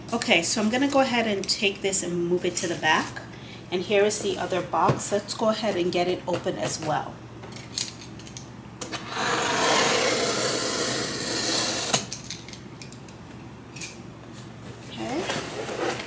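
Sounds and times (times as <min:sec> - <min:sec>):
cardboard rubbing and scraping: 0:09.0 - 0:11.9, 0:15.0 - 0:16.0.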